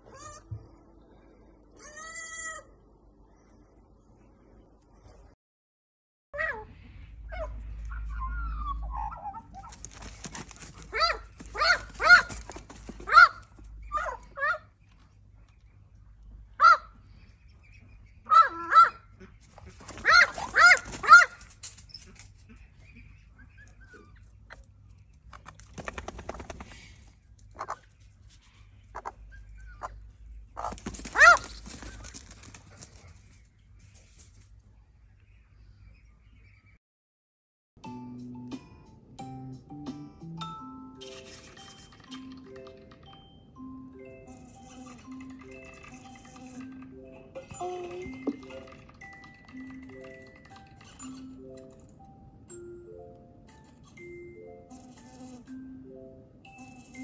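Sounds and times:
dogs yelping: 6.4 - 14.7, 16.6 - 17.0, 18.2 - 19.1, 19.8 - 21.5, 30.6 - 32.9, 44.3 - 51.5, 56.5 - 57.0
dog whining: 7.3 - 9.8, 44.3 - 48.6, 56.5 - 57.0
animal crying loudly: 20.0 - 21.4.

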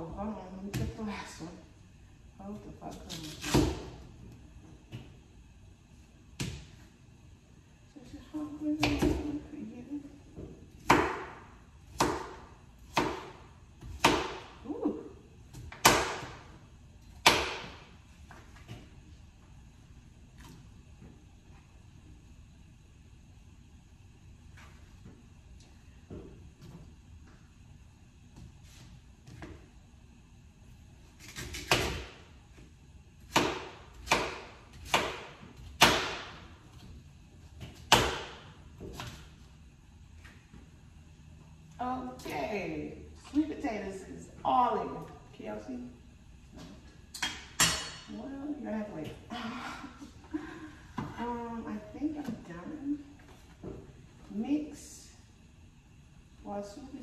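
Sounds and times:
knife chopping on cutting board: 10.8 - 14.5, 33.3 - 36.4.

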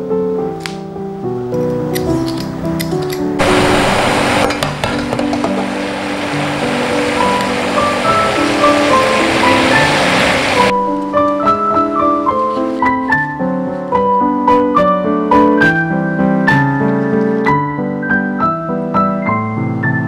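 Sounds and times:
gentle piano music: 0.0 - 20.0
rushing hiss: 3.4 - 10.7.

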